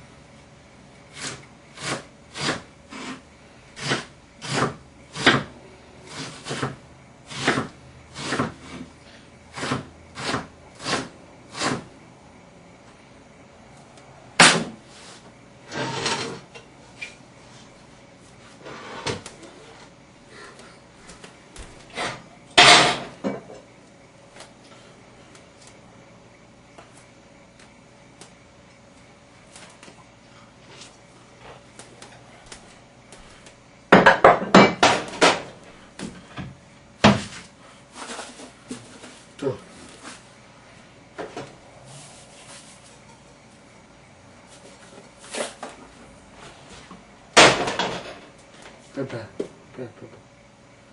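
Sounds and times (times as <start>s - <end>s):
knife chopping on cutting board: 3.8s - 5.5s, 6.1s - 8.8s, 9.6s - 11.8s.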